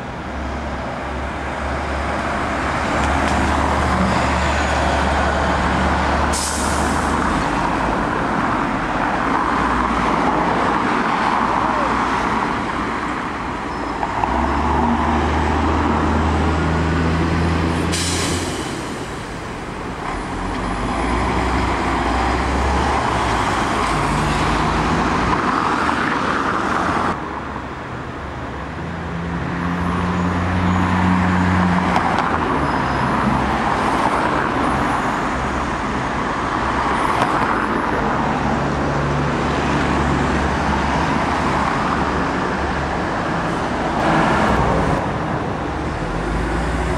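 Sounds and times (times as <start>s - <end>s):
buses and cars passing: 0.0s - 46.9s.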